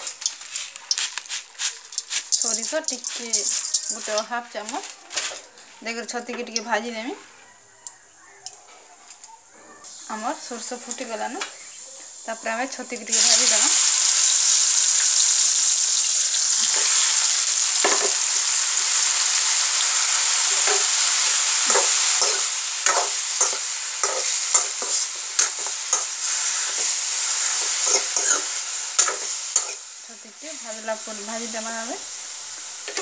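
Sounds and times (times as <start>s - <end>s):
mushrooms sizzling in hot oil: 0.0s - 4.9s, 10.0s - 33.0s
spatula scraping pan: 21.6s - 29.9s.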